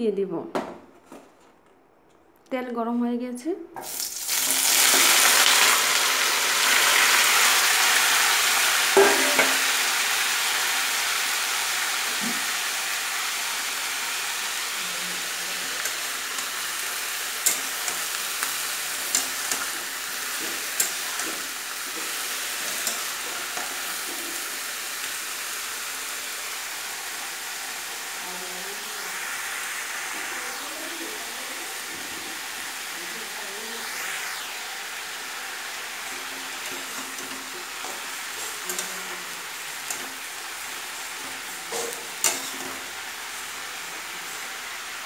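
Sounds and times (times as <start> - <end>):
food sizzling in oil: 3.8 - 45.0
metal spatula stirring: 17.4 - 24.4, 36.3 - 40.2, 40.9 - 42.9.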